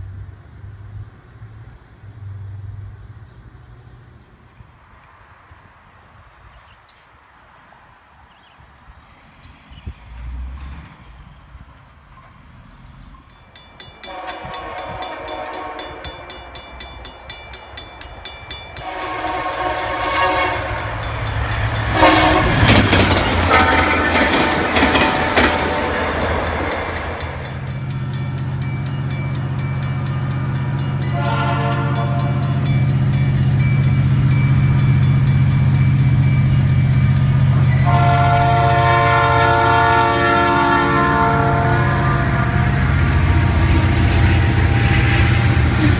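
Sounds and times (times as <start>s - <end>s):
locomotive engine droning: 13.0s - 45.9s
locomotive horn blasts: 14.0s - 16.6s, 18.8s - 27.6s, 31.0s - 32.7s, 37.5s - 45.9s.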